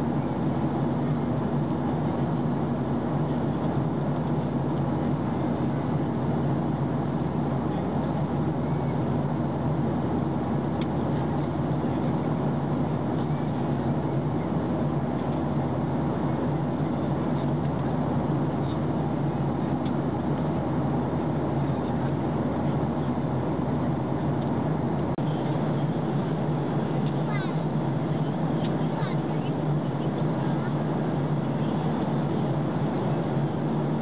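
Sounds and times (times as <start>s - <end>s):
jet airliner cabin drone: 0.0s - 34.0s.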